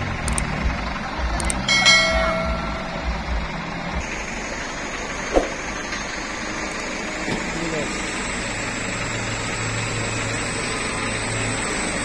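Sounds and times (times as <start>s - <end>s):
diesel truck engine rumbling: 0.0s - 12.0s
chiming sound effect: 1.6s - 3.6s.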